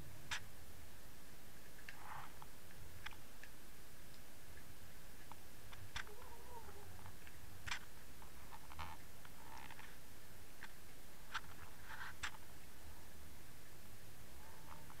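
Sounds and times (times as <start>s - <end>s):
sharp underwater clicks: 1.6s - 6.2s, 7.0s - 9.9s.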